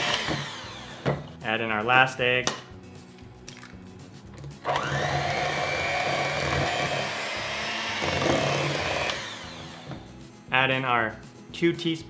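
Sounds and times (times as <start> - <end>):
electric hand mixer whining: 0.0 - 1.2, 4.6 - 10.1.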